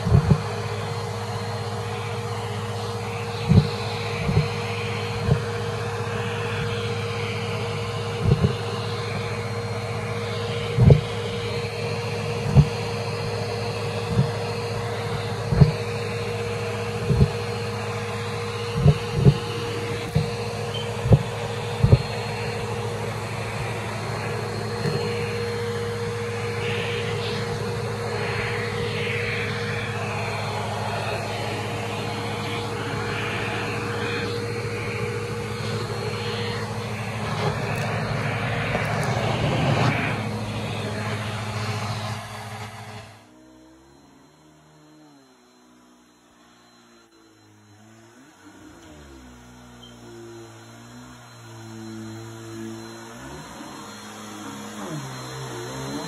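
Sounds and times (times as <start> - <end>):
vacuum cleaner motor hum: 0.0 - 56.0.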